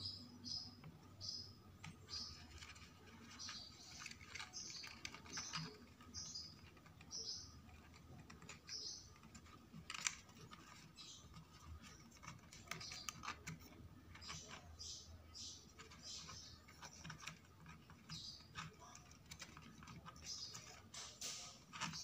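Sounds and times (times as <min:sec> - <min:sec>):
faint high-pitched chirp: 0:00.0 - 0:02.6
small clicks and taps: 0:01.7 - 0:22.0
paper crinkling: 0:02.4 - 0:07.1.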